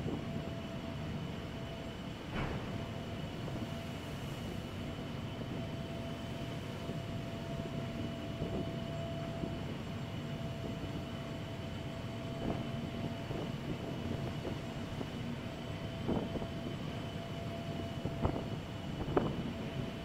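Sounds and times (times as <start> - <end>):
ferry engines droning: 0.0 - 20.0.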